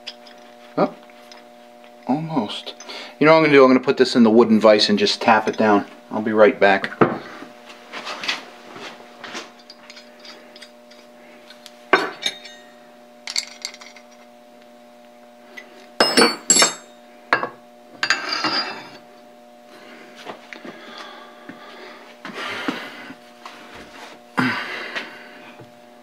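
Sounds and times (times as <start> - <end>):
metal parts clinking: 13.3 - 14.2.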